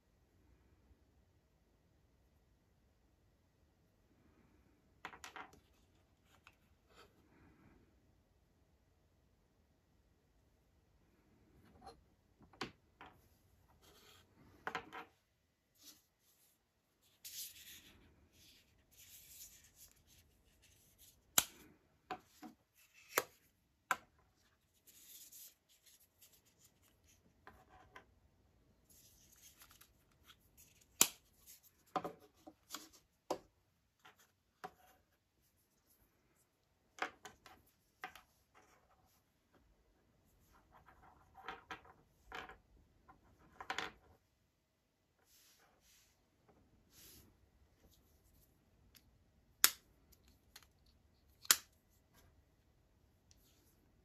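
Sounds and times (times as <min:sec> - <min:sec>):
soft rubbing and sliding: 0:13.2 - 0:14.7, 0:45.2 - 0:48.6.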